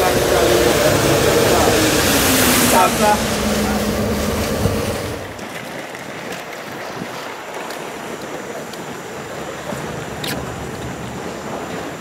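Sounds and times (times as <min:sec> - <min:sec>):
rush with low rumble: 0:00.0 - 0:06.2
rush of wind and water: 0:00.0 - 0:12.0
wind buffeting microphone: 0:00.0 - 0:12.0.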